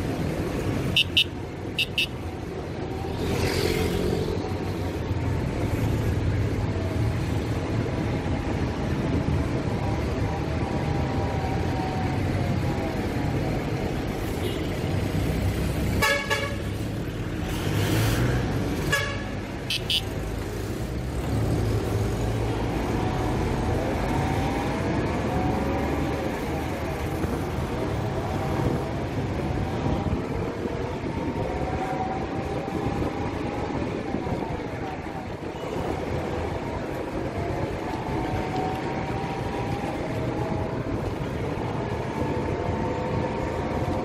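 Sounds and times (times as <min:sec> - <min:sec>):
road traffic rumble: 0:00.0 - 0:44.0
vehicles passing close by: 0:00.0 - 0:44.0
vehicle horn toots: 0:01.0 - 0:02.2, 0:18.9 - 0:20.1.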